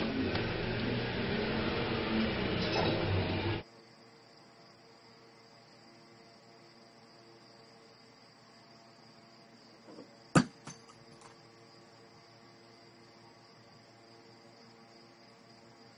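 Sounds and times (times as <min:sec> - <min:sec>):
faint high-pitched hiss: 0:03.6 - 0:15.9
small object hitting the floor: 0:09.9 - 0:11.4.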